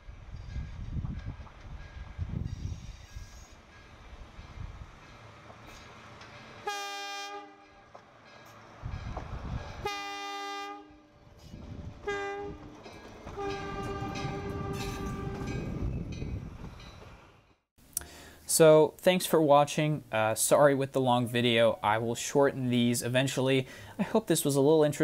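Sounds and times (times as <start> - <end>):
low rumble of train rolling: 0.0 - 17.6
locomotive chime horn: 6.6 - 8.0, 9.8 - 11.2, 12.0 - 15.8.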